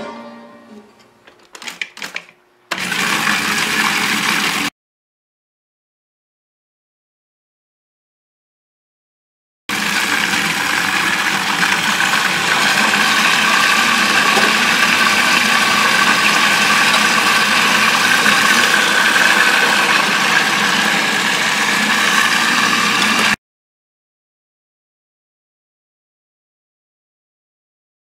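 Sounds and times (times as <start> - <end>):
food processor motor running: 2.7 - 4.7, 9.7 - 23.4.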